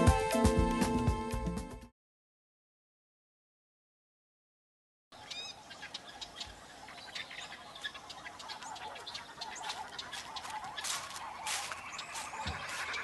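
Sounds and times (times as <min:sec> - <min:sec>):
faint bird chorus: 0:05.1 - 0:13.0
small birds chirping and calling: 0:05.1 - 0:13.0.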